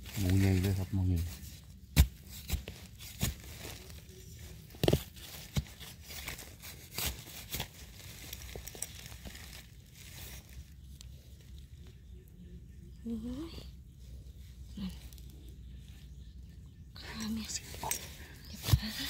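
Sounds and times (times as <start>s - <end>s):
dry leaves crackling and rustling: 0.0s - 12.3s
twigs snapping: 1.9s - 11.9s.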